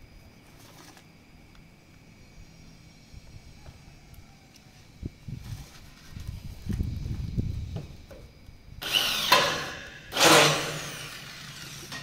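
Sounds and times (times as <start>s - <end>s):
cordless drill drilling into steel: 8.8s - 12.0s.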